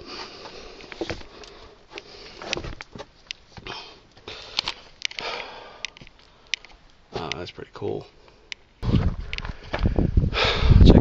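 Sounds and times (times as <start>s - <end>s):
breathing: 0.0s - 2.6s, 3.6s - 6.7s, 8.1s - 8.6s, 9.2s - 10.8s.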